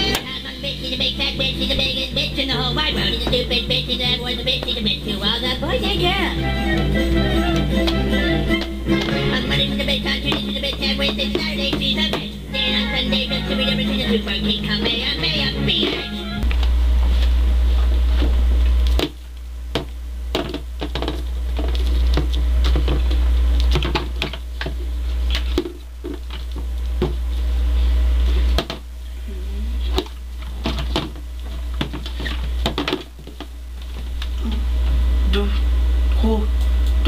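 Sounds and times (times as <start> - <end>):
loud low hum: 0.0 - 19.0
plastic toys clicking and knocking: 20.4 - 24.8, 30.0 - 33.5.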